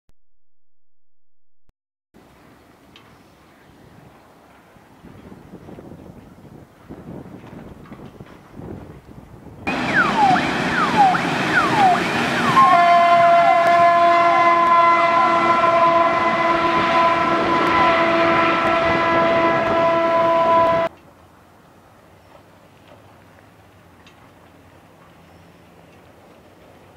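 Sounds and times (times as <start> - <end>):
wind noise on microphone: 3.6 - 20.9
siren whooping: 9.7 - 20.9.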